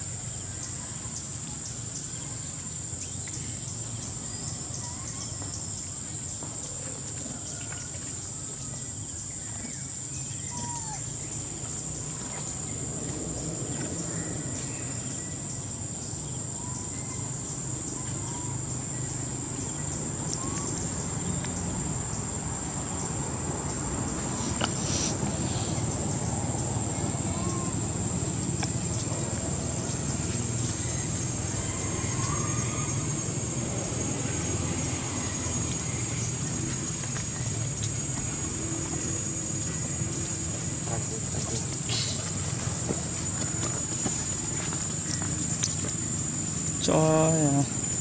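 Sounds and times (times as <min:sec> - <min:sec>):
high-pitched insect drone: 0:14.0 - 0:48.0.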